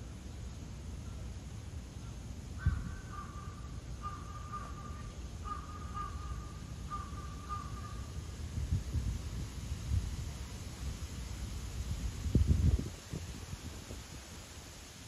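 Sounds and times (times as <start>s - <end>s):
crow cawing: 2.6s - 8.1s.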